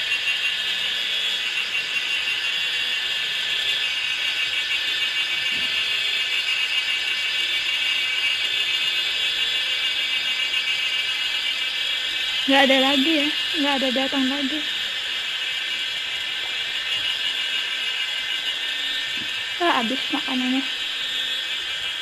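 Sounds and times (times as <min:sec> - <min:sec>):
high-pitched insect chorus: 0:00.0 - 0:22.0.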